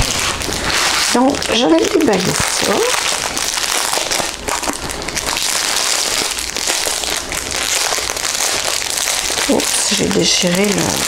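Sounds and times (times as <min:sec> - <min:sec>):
plastic packaging crinkling: 0:00.0 - 0:11.0.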